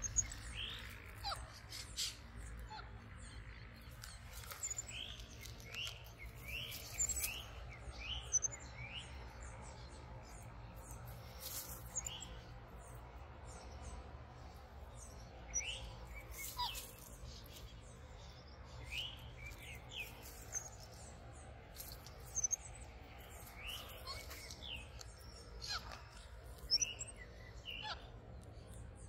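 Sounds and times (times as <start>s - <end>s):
small animals chirping: 0.0s - 7.6s, 16.2s - 17.7s, 21.8s - 28.1s.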